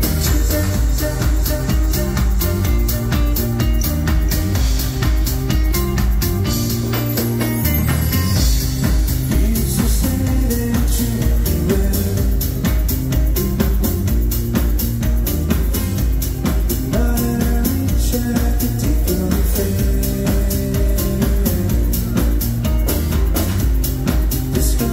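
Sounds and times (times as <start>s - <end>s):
live band music: 0.0s - 24.9s
steady drum beat: 0.0s - 24.9s.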